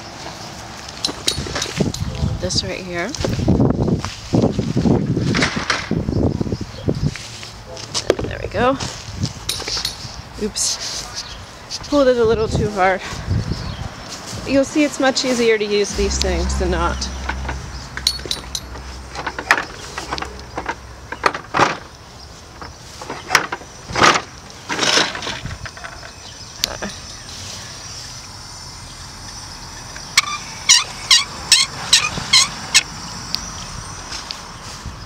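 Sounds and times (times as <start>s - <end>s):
hose reel cart knocks and rustles: 9.5s - 10.1s, 17.2s - 21.9s, 22.5s - 26.3s.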